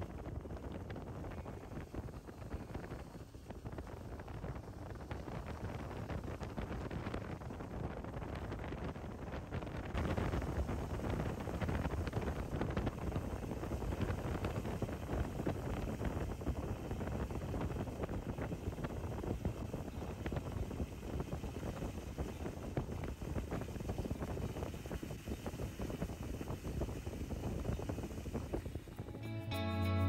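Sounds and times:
wind buffeting microphone: 0.0 - 29.3.

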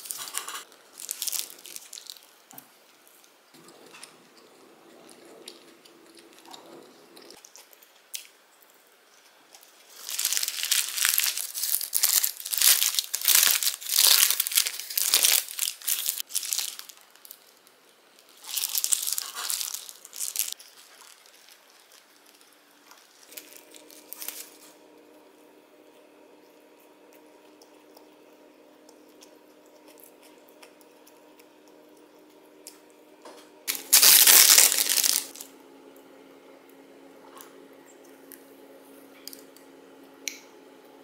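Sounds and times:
paper wrapper crinkling: 0.0 - 2.5, 9.6 - 24.7, 33.7 - 35.4.

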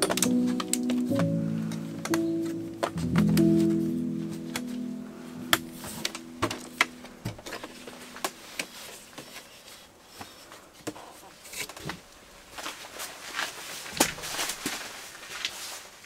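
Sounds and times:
music: 0.0 - 8.6.

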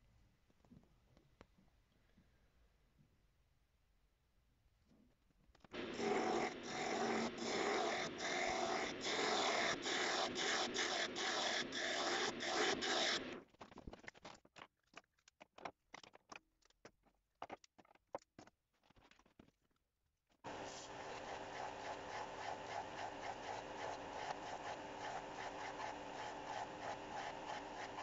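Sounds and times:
lathe tool rasping on wood: 5.8 - 13.4, 20.5 - 28.0.

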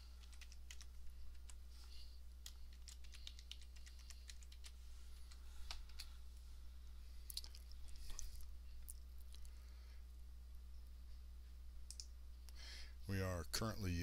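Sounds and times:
low electrical hum: 0.0 - 14.0
typing on computer keyboard: 0.2 - 1.6, 2.4 - 4.8.

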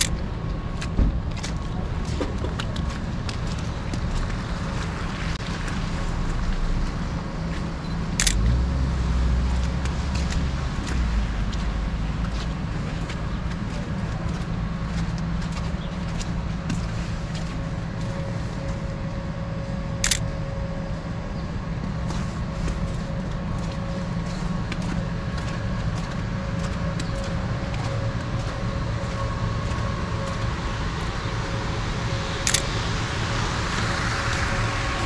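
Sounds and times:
traffic rumble: 0.0 - 35.0
camera shutter click: 8.2 - 8.4, 20.0 - 20.2, 32.5 - 32.7.

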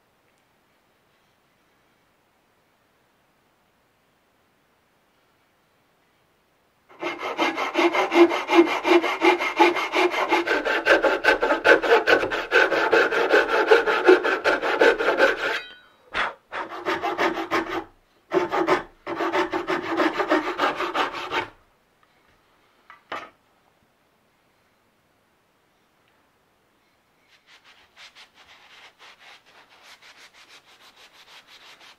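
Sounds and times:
hand saw cutting wood: 6.9 - 21.6.

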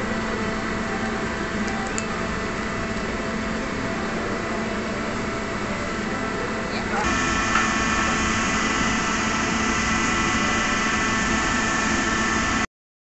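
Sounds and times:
mechanical hum and hiss: 0.0 - 12.7.

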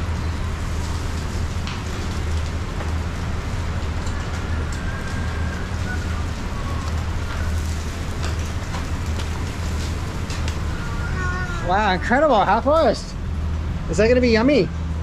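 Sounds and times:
food sizzling on a griddle: 0.4 - 12.4.

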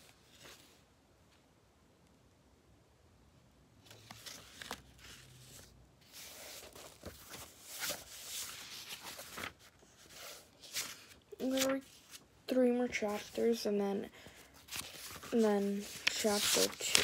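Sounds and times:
pages and bedding rustling: 3.9 - 17.0.

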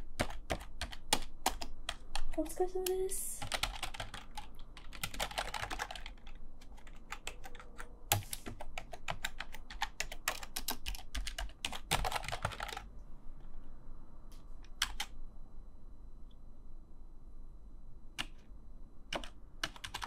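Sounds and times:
keyboard keys clacking: 19.1 - 20.0.

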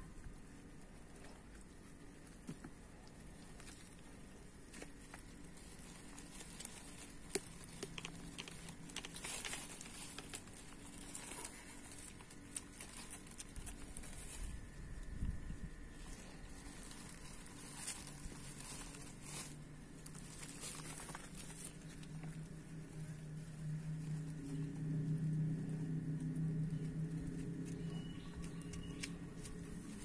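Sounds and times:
plastic pouch crinkling: 4.7 - 14.7, 15.9 - 22.2.

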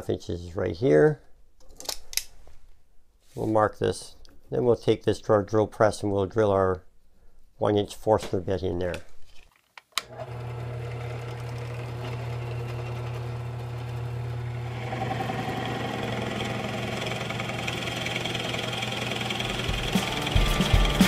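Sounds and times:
drill bit boring into wood: 10.0 - 20.4
drill press motor running: 10.1 - 21.0.

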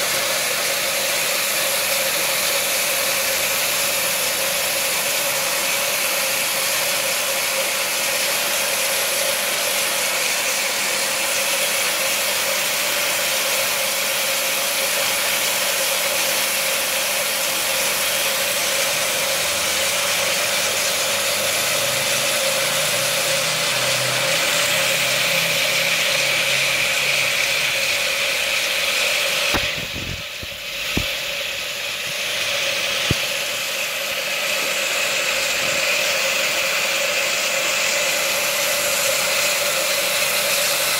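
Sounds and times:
electric water pump running: 0.0 - 40.9
hiss of water and air: 28.6 - 37.2.

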